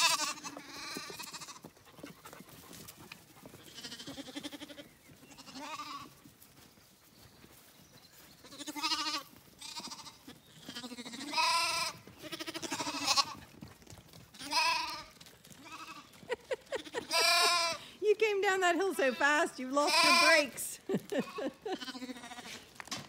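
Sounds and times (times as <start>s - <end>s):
lambs bleating: 0.0s - 1.6s, 3.7s - 6.1s, 8.4s - 13.4s, 14.4s - 16.1s, 16.8s - 17.9s, 19.0s - 22.6s.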